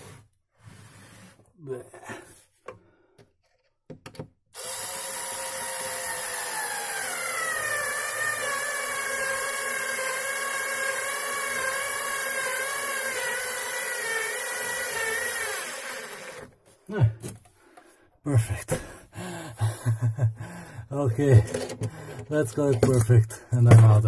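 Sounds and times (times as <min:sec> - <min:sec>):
cordless screwdriver running: 0:04.6 - 0:16.5.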